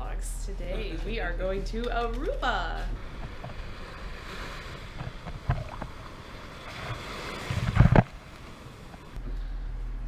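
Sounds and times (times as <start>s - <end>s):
wind buffeting microphone: 0.0s - 9.3s
surf washing over sand: 2.7s - 9.2s.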